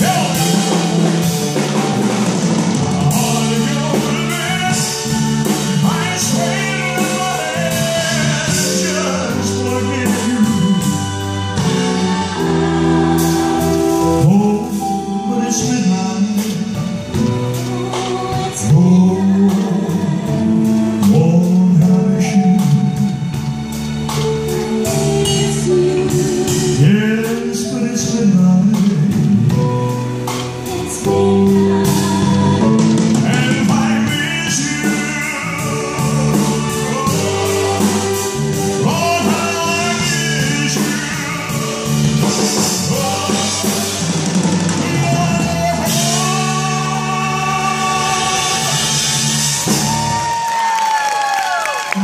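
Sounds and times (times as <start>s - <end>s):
man singing into a microphone: 0.0s - 1.4s, 3.0s - 11.1s, 14.1s - 17.2s, 17.8s - 23.2s, 25.2s - 29.6s, 32.6s - 49.2s
live band music: 0.0s - 52.0s.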